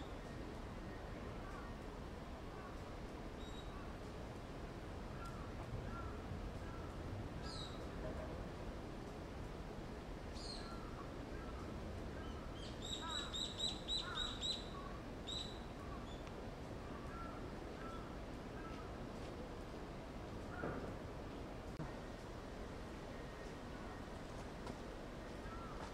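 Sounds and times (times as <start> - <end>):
steady low background noise: 0.0 - 25.9
birds calling: 5.1 - 8.1, 10.4 - 19.0, 23.1 - 25.9.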